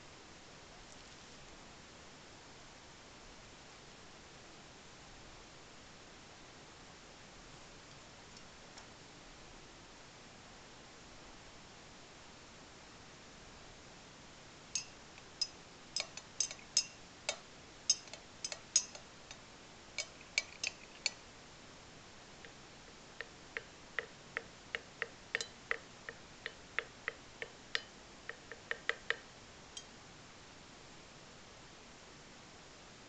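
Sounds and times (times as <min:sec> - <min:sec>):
glass rod clinking in beaker: 0:14.8 - 0:19.0, 0:20.0 - 0:21.2, 0:25.4 - 0:25.6.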